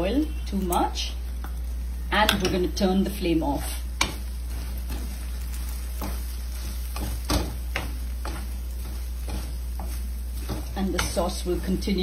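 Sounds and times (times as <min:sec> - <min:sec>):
oil sizzling hiss: 0:00.0 - 0:12.0.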